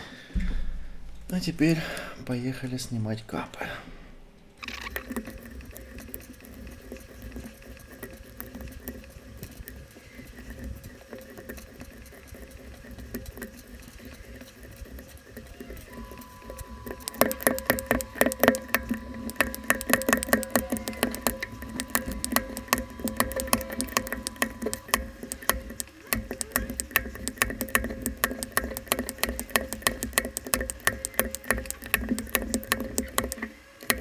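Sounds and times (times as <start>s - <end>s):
keycaps clicking off keyboard: 15.5s - 34.0s.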